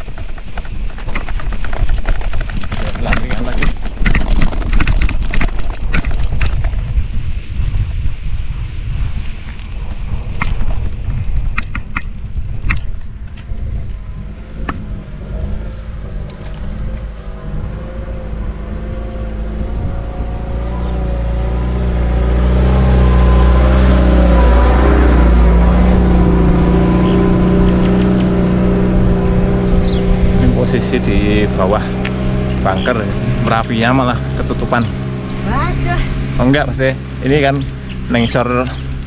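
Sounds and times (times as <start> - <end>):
wind and riding noise rumble: 0.0 - 39.0
vehicle engine approaching: 8.2 - 39.0.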